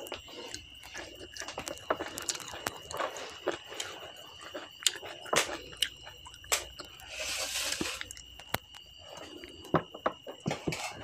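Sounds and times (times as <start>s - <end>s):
chewing with wet mouth clicks: 0.0s - 7.0s.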